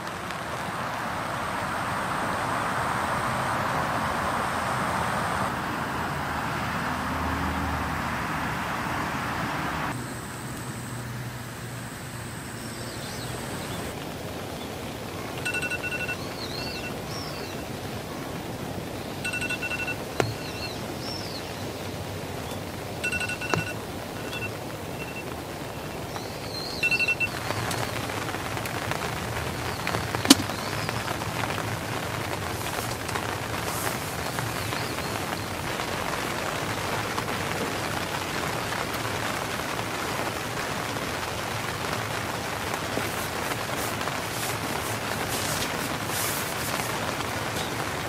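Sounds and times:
heavy rain falling: 0:00.0 - 0:10.0, 0:12.7 - 0:48.0
birds chirping: 0:12.4 - 0:40.0, 0:40.8 - 0:48.0.

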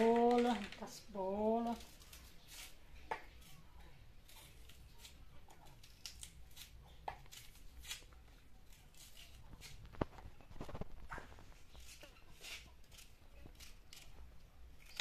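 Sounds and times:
knife slicing onion: 0:01.6 - 0:10.0, 0:11.6 - 0:15.0.

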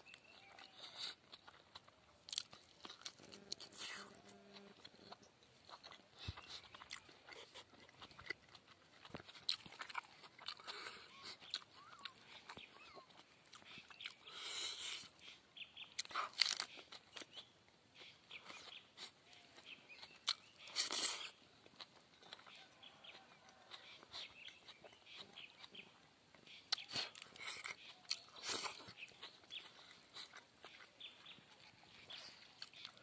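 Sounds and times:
person chewing and crunching food: 0:00.0 - 0:33.0.

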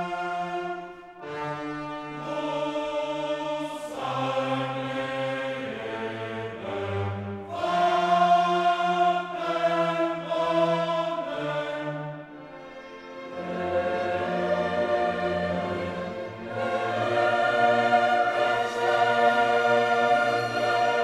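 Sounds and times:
choir singing held notes: 0:00.0 - 0:21.0.

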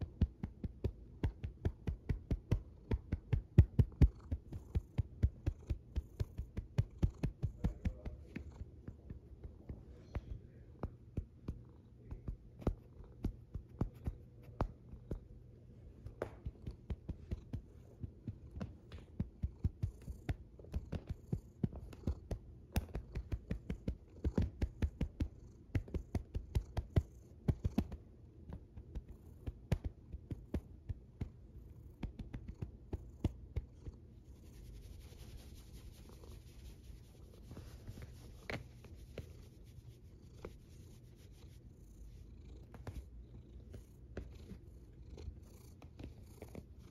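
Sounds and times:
cat purring: 0:00.0 - 0:46.9
fur rubbing on microphone: 0:34.2 - 0:41.7.

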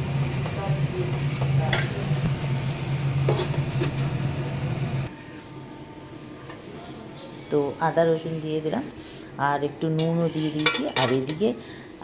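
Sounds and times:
metal spatula scraping a wok: 0:10.0 - 0:11.4.

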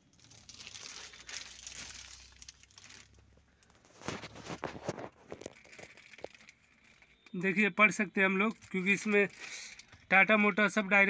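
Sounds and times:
plastic cover handling rustle: 0:00.0 - 0:10.8.

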